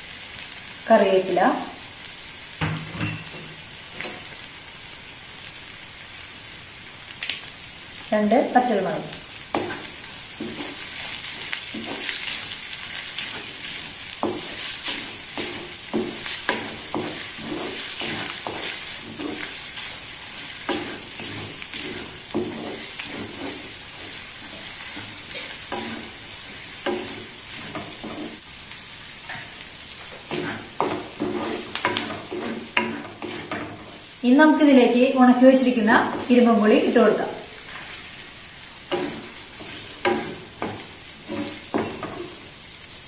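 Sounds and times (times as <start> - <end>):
oil sizzling: 0.0 - 43.0
wooden spatula scraping clay pot: 13.2 - 28.4, 30.1 - 34.0, 38.9 - 42.3.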